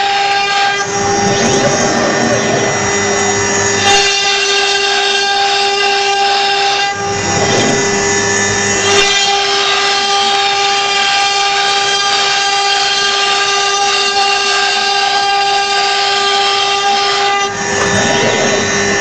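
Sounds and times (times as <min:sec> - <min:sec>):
router bit cutting wood: 0:00.7 - 0:10.4, 0:17.2 - 0:19.0
router spindle whining: 0:00.7 - 0:10.4, 0:16.9 - 0:19.0.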